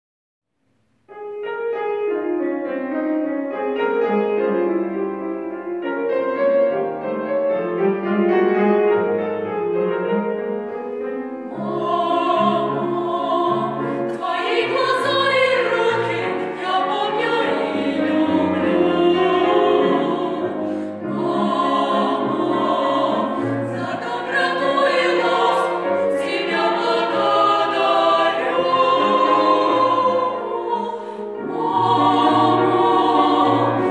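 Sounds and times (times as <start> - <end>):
piano: 0.5 - 33.9
vocal ensemble singing: 11.4 - 33.9.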